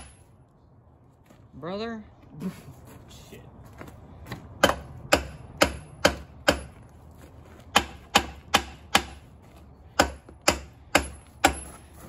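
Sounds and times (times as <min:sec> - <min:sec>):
hammer striking metal: 0:04.6 - 0:06.7, 0:07.7 - 0:09.2, 0:10.0 - 0:11.7.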